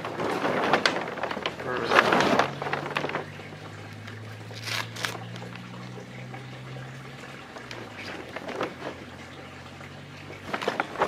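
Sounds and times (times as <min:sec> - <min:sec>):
plastic bag and sailcloth rustling: 0:00.0 - 0:05.5, 0:07.8 - 0:09.2, 0:10.3 - 0:11.0.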